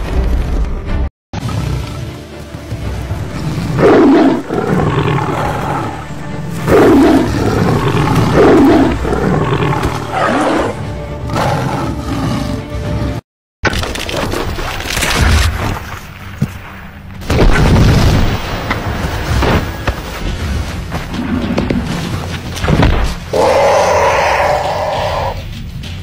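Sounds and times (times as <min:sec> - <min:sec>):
background music: 0:00.8 - 0:13.2, 0:17.0 - 0:26.0
lions roaring: 0:03.4 - 0:12.7.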